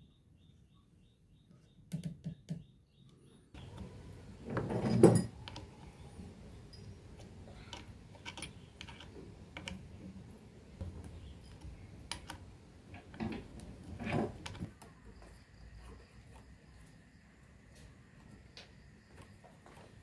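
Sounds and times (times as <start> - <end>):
small metal parts clicking: 6.6 - 9.9.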